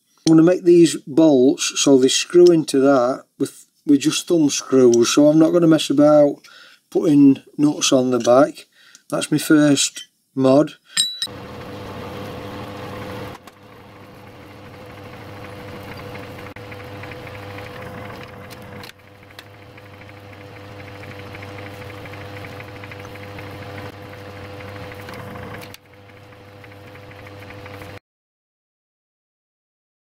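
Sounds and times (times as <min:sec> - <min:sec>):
metal lathe humming and whining: 0:11.3 - 0:28.0.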